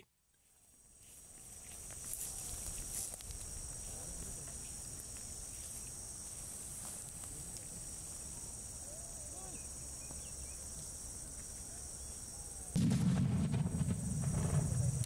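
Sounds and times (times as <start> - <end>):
insects chirping: 0.0 - 15.0.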